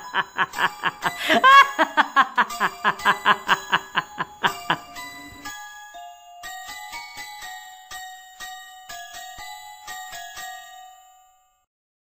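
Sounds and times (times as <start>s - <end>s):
person laughing: 0.0s - 5.5s
soft chiming music: 0.0s - 11.7s.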